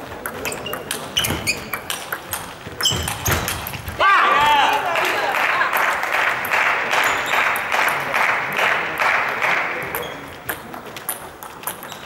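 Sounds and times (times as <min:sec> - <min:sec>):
spectators clapping: 0:04.5 - 0:10.4.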